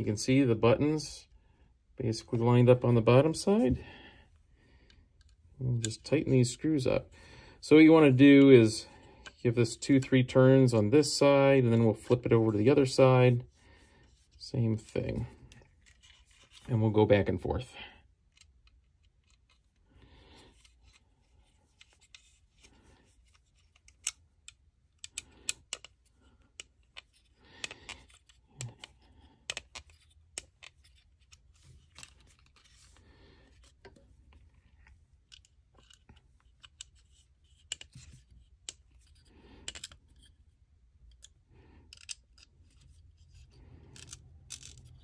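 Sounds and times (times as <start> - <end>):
hex key clicking and scraping: 35.2 - 40.4, 41.0 - 45.0.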